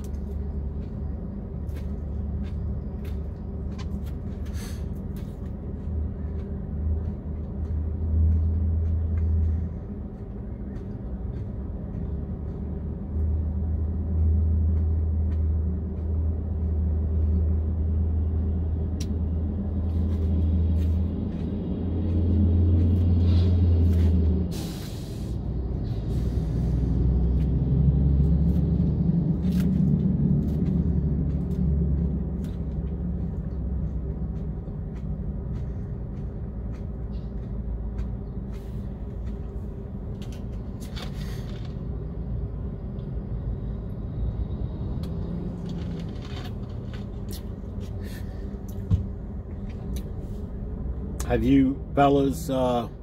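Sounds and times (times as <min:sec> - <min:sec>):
diesel truck engine idling: 0:29.9 - 0:45.6, 0:46.6 - 0:53.0.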